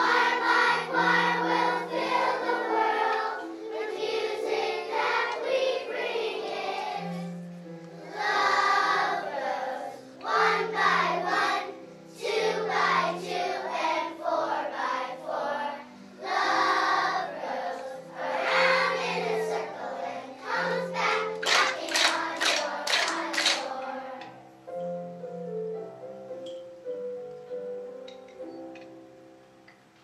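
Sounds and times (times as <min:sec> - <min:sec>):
children's choir singing: 0:00.0 - 0:24.8
instrumental accompaniment: 0:15.8 - 0:30.0.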